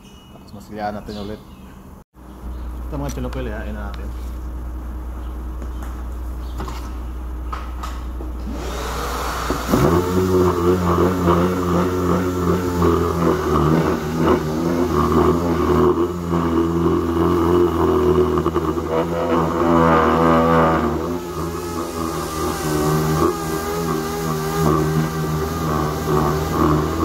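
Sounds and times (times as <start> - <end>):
air-powered orbital sander: 8.2 - 27.0.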